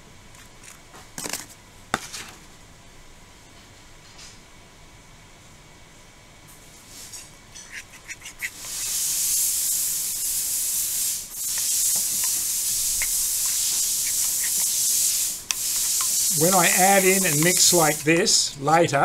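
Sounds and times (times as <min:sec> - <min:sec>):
spoon scraping in ceramic bowl: 0:07.6 - 0:08.9, 0:11.4 - 0:18.2.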